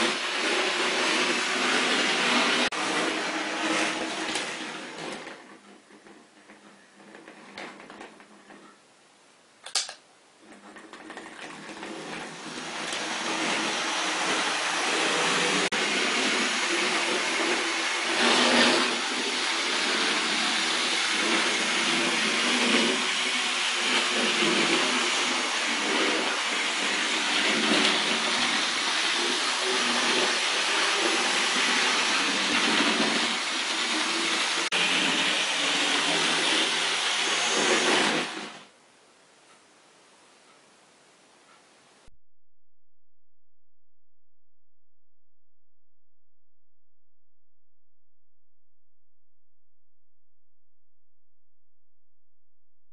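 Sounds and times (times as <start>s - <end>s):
sharp click: 9.6s - 10.0s
model train whirring on track: 12.2s - 38.6s.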